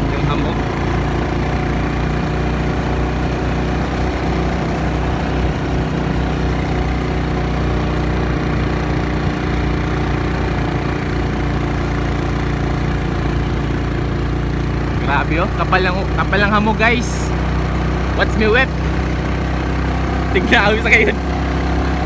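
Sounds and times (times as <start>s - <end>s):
motorcycle engine cruising: 0.0s - 22.0s.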